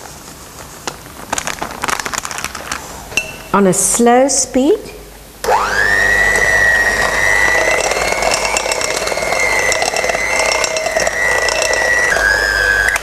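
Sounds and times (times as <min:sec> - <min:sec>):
electric hand beater whining: 0:05.5 - 0:13.0.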